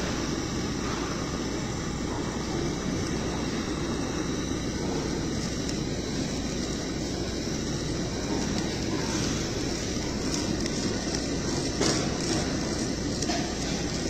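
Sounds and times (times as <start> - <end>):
ventilation fan rushing: 0.0 - 14.0.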